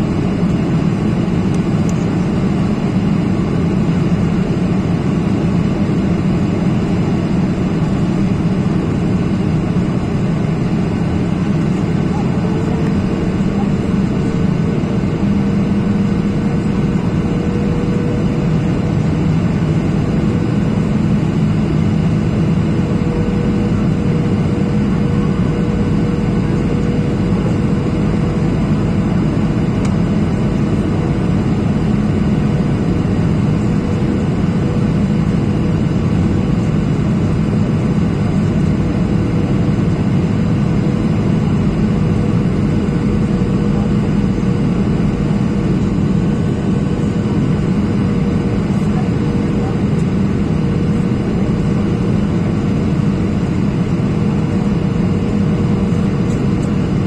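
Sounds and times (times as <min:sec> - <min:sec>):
airplane cabin roar: 0:00.0 - 0:57.0.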